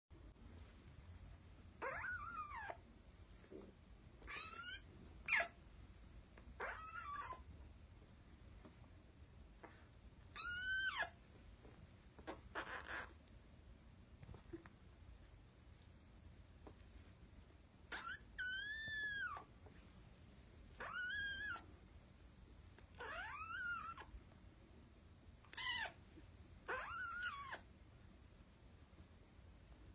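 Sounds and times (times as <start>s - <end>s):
kitten meowing: 1.8s - 2.8s, 4.2s - 5.6s, 6.6s - 7.4s, 10.3s - 11.2s, 20.8s - 21.7s, 23.0s - 24.1s, 25.5s - 26.0s, 26.7s - 27.6s.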